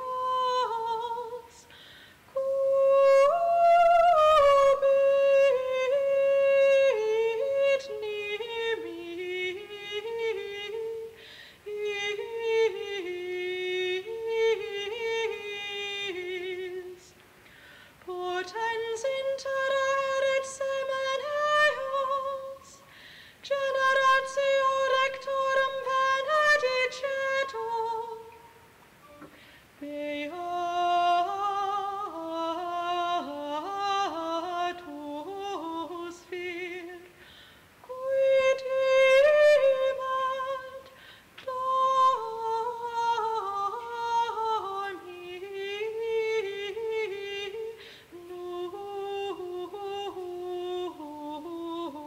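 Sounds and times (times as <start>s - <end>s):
solo high voice singing: 0.0s - 17.2s, 18.0s - 37.2s, 37.8s - 52.0s
singer breathing: 1.6s - 2.3s, 11.2s - 11.6s, 17.4s - 18.0s, 22.8s - 23.4s, 29.2s - 29.8s, 37.1s - 37.8s, 40.9s - 41.4s, 47.8s - 48.2s.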